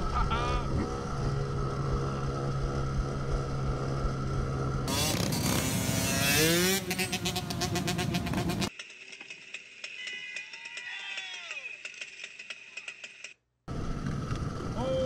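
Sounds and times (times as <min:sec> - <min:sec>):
engine revving: 0:00.0 - 0:08.7
mini-bike engines running: 0:06.9 - 0:15.0.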